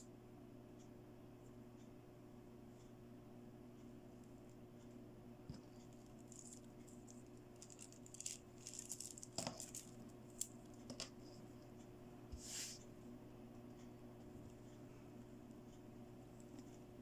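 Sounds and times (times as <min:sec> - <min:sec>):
plastic beads clicking and rattling: 0:06.2 - 0:11.0.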